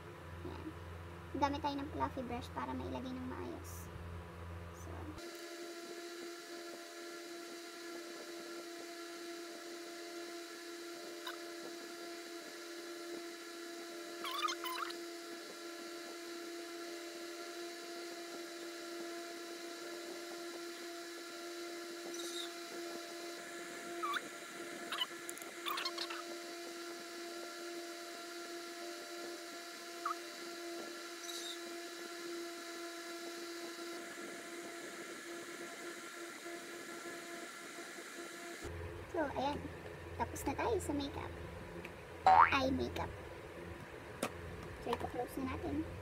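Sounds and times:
electric fan motor hum: 0:00.0 - 0:46.0.

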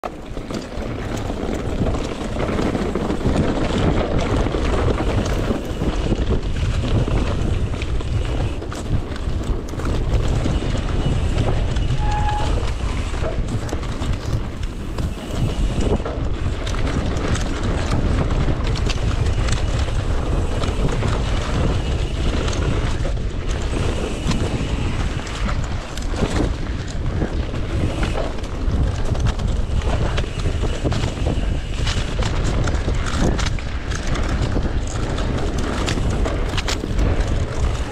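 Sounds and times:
bike tyres rumbling on gravel: 0:00.0 - 0:37.9
wind buffeting microphone: 0:00.0 - 0:37.9
short squeak: 0:11.9 - 0:12.8.

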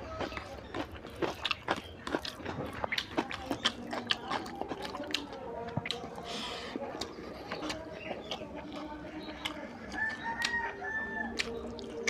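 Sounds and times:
person chewing: 0:00.0 - 0:12.0
lip smacks and mouth clicks: 0:11.3 - 0:12.0.

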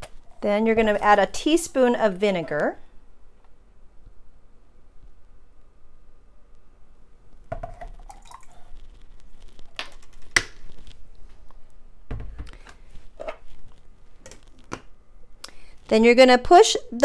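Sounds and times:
vinegar trickling from spoon: 0:07.7 - 0:08.8.

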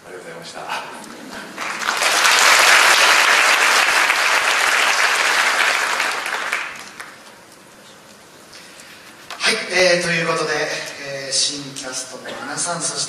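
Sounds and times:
people applauding: 0:01.3 - 0:07.3.

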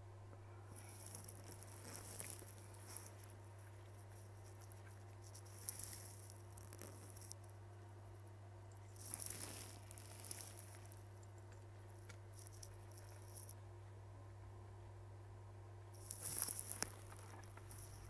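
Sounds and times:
steady low electrical hum: 0:00.0 - 0:18.0
small clicks and rustles: 0:00.7 - 0:07.6, 0:08.2 - 0:13.6, 0:16.0 - 0:18.0.

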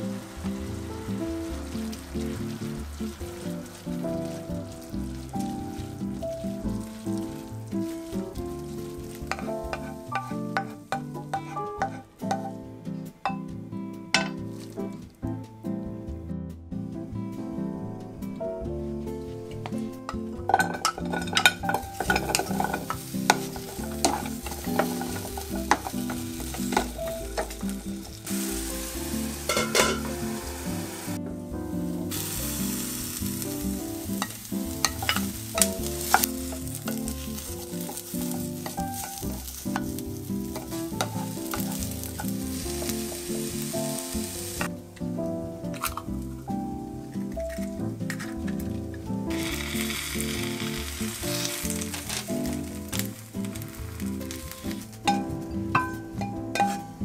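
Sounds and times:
vegetables sizzling in frying pan: 0:00.0 - 0:12.5, 0:20.5 - 0:31.2, 0:31.8 - 0:44.7, 0:47.1 - 0:57.0
wooden spatula clicking on pan: 0:20.5 - 0:27.6.

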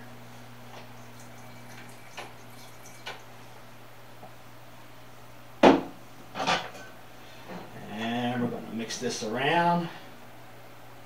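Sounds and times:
bottle knocking on countertop: 0:05.6 - 0:05.9.

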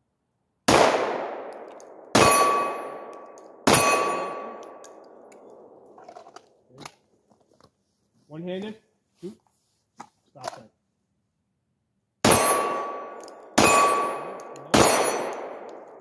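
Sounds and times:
pistol shots echoing: 0:00.7 - 0:05.8, 0:12.2 - 0:16.0.

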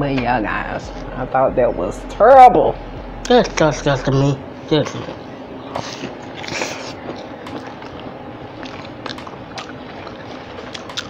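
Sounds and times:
crunchy chewing: 0:05.8 - 0:11.0
wet mouth clicks: 0:07.5 - 0:11.0.

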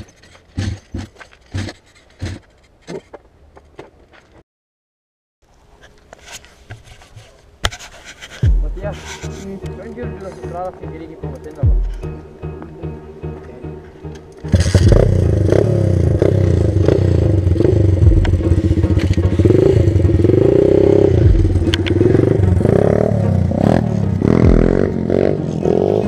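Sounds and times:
motorbike engine revving: 0:14.2 - 0:26.0.

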